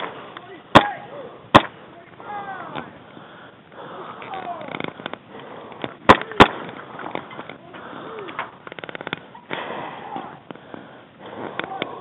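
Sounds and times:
faint distant shouting: 0.4s - 3.0s, 9.3s - 10.5s, 11.5s - 12.0s
airsoft gun pops: 1.5s - 1.8s.

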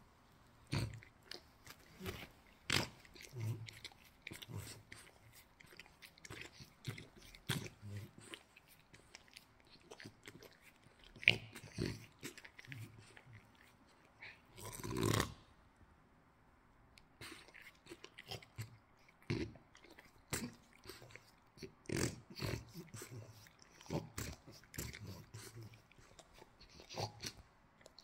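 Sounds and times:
wet mouth clicks: 17.0s - 28.0s.

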